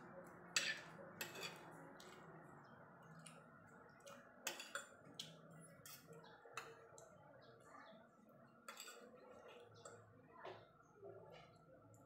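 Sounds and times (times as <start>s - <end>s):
cutlery scraping ceramic plate: 0.5s - 2.2s, 4.4s - 5.0s, 8.6s - 9.1s.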